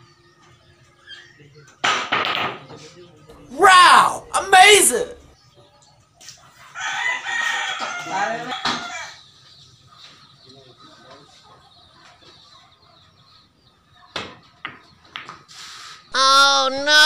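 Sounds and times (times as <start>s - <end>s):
faint background chatter: 0.0s - 15.2s
rooster crowing: 6.8s - 9.2s.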